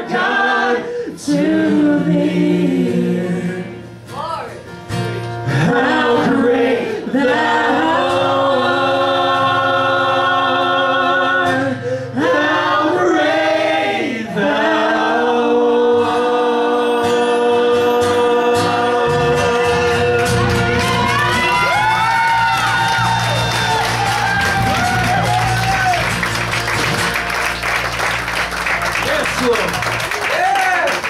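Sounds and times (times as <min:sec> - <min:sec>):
women singing in harmony: 0:00.0 - 0:03.8, 0:05.5 - 0:20.6
instrumental backing: 0:18.0 - 0:30.2.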